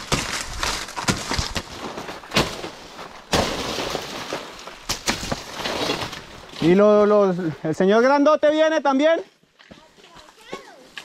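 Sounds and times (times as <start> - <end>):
sharp cracks and knocks: 0.0 - 6.8
rustling of leaves and undergrowth: 0.0 - 7.9.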